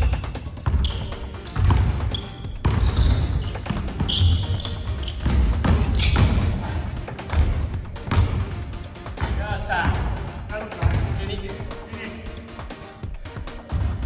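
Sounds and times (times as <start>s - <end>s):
sneakers squeaking: 0.0s - 8.6s
basketball dribbling on hardwood: 0.6s - 6.4s, 7.3s - 8.4s.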